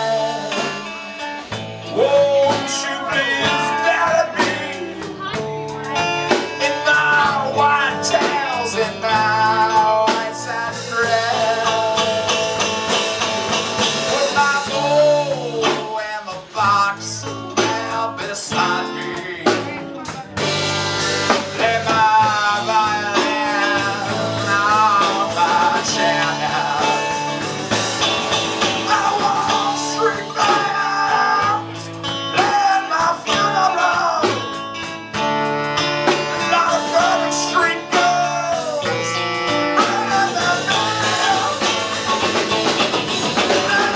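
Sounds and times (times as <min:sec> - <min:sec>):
drums: 0:00.0 - 0:43.9
electric guitar: 0:00.0 - 0:43.9
saxophone: 0:34.0 - 0:43.9.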